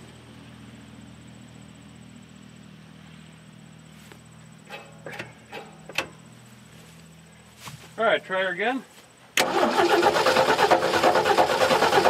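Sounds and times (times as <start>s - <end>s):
low steady hum: 0.0s - 9.5s
crickets chirping: 0.0s - 12.0s.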